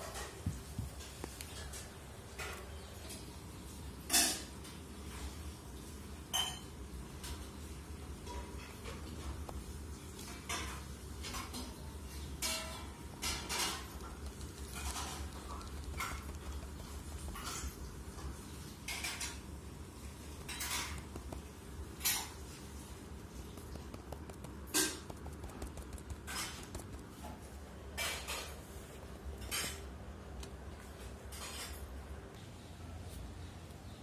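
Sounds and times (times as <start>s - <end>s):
light taps and clinks: 8.2s - 19.5s.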